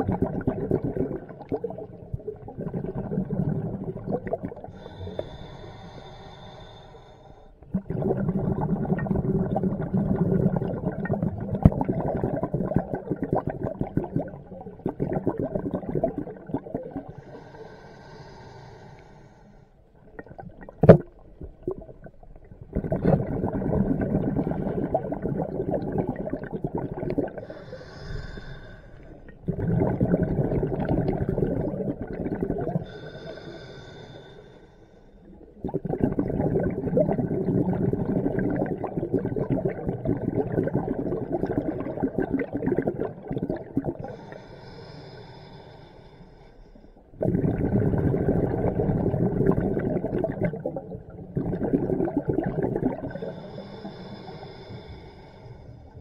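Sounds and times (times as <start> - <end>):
regulator bubbling exhalation: 0.0 - 6.6, 7.6 - 18.3, 20.2 - 34.6, 35.5 - 45.7, 47.2 - 56.0
hissing inhale: 4.7 - 7.6, 17.1 - 19.8, 27.4 - 29.3, 32.8 - 35.3, 44.0 - 47.1, 53.1 - 56.0.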